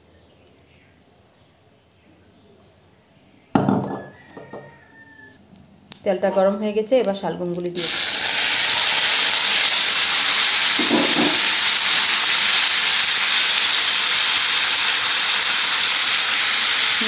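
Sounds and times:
turnip cubes sizzling in hot oil: 7.8 - 17.0.

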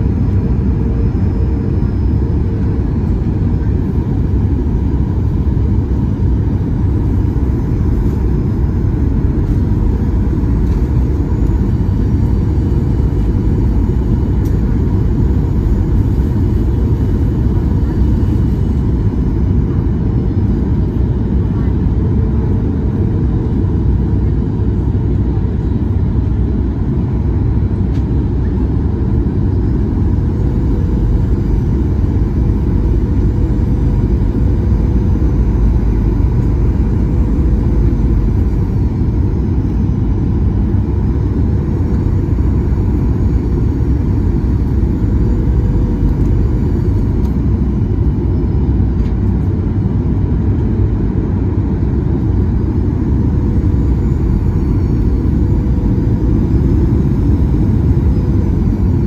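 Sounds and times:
jet engine cabin roar: 0.0 - 59.0
steady hum: 0.0 - 59.0.

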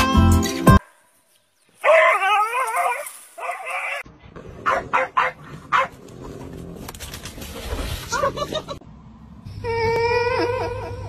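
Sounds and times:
scuffling: 1.6 - 4.0
dog barking: 1.8 - 4.0, 4.6 - 6.0.

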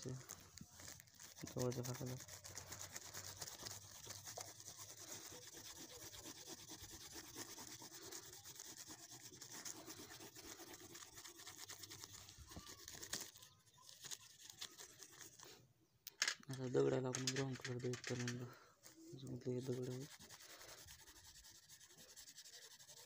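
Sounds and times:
pencil scratching on paper: 1.1 - 15.5, 19.3 - 23.0.

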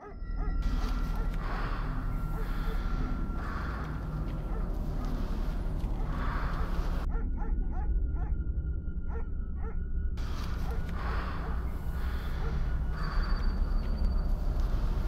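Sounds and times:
steady low rumble: 0.6 - 15.0.

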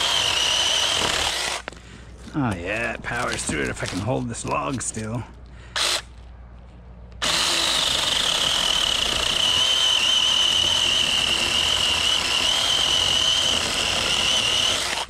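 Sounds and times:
chainsaw cutting through log: 0.0 - 1.8, 5.8 - 6.0, 7.2 - 15.0.

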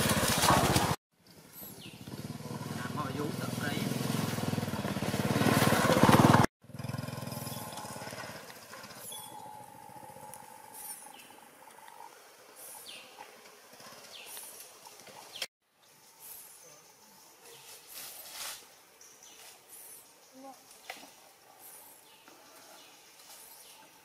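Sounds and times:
small motorcycle engine: 0.0 - 14.3
birds chirping: 1.2 - 3.8, 7.2 - 8.2, 8.8 - 17.8.

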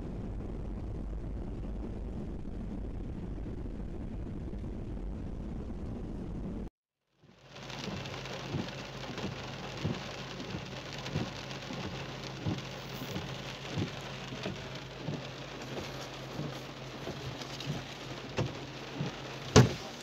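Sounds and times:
low steady hum: 0.0 - 6.7
rain pattering on car roof: 7.2 - 20.0
windscreen wipers thumping: 7.6 - 20.0.

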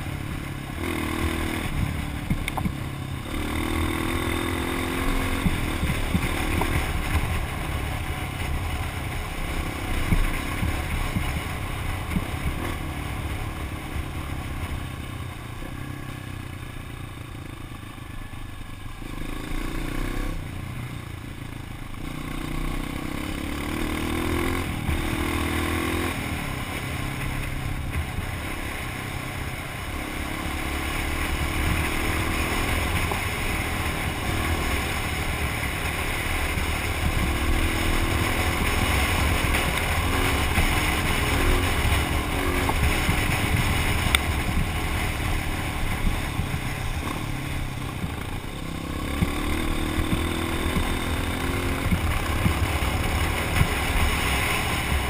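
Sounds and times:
dirt bike engine revving: 0.0 - 2.5, 3.2 - 8.2, 22.0 - 26.5, 29.9 - 55.0.

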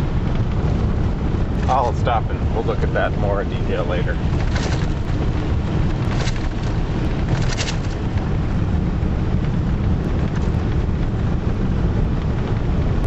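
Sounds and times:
engine and tyre rumble: 0.0 - 13.0
short crackles: 4.1 - 8.2.

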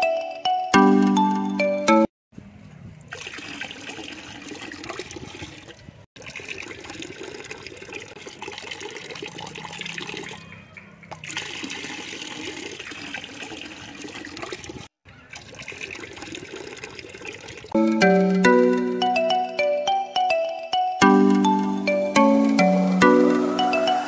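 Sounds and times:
water stream splashing into pool: 3.1 - 17.8, 21.8 - 24.0.

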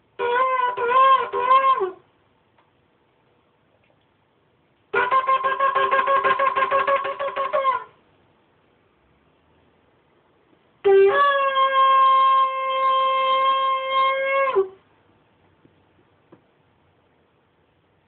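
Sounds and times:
ram's horn blasts: 0.2 - 2.0, 4.9 - 8.0, 10.8 - 14.8.

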